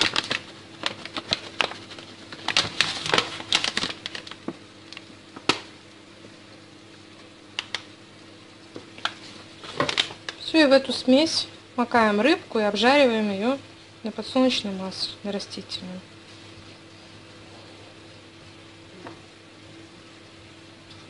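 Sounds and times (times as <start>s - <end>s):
plastic bag rustling and crackling: 0.0s - 5.7s, 8.8s - 10.6s.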